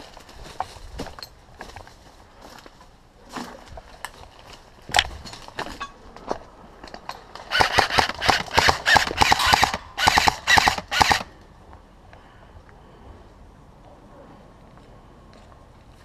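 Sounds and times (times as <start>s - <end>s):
airsoft rifle firing bursts: 7.5s - 11.3s.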